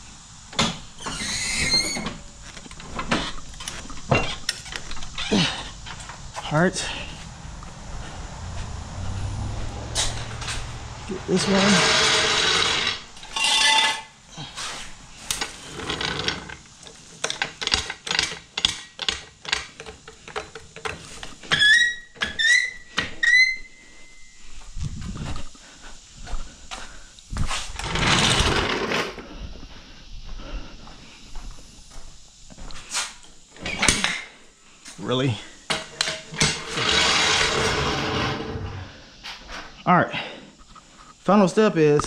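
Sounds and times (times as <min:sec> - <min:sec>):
short rising squeaks: 0:01.0 - 0:02.2, 0:21.4 - 0:24.4
loud burst of noise: 0:07.9 - 0:13.3
floor jack clanking and clicking: 0:11.3 - 0:14.1, 0:15.3 - 0:22.4, 0:27.8 - 0:29.2, 0:35.7 - 0:38.8.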